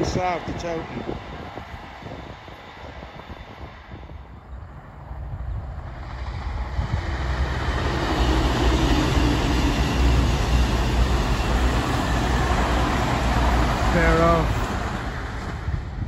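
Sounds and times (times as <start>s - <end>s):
train wheels rushing on rails: 0.0s - 16.0s
diesel engines droning: 3.9s - 16.0s.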